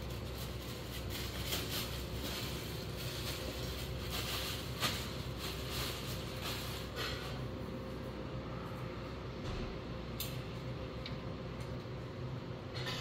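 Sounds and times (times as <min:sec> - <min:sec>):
plastic wrapping crinkling: 0:00.0 - 0:08.0
steady low hum: 0:00.0 - 0:13.0.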